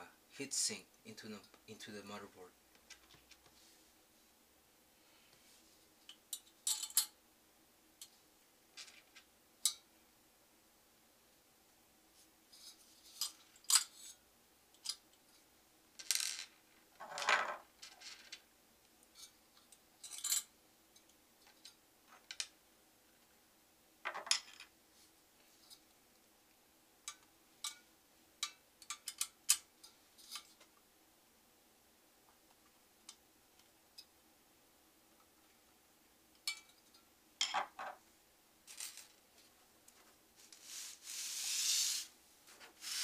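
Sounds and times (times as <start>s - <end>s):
metal scrape: 40.4s - 43.0s.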